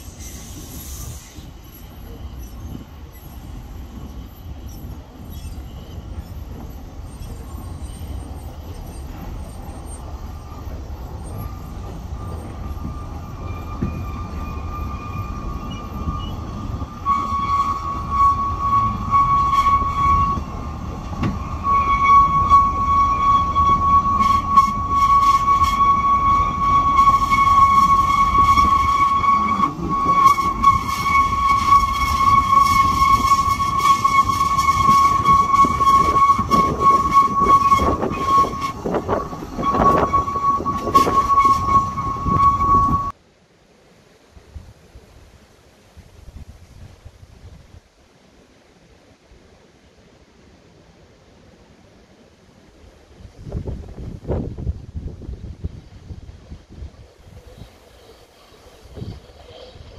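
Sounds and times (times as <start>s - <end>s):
high-pitched wheel squeal: 0.0s - 43.2s
train rumble: 0.0s - 43.3s, 44.2s - 59.9s.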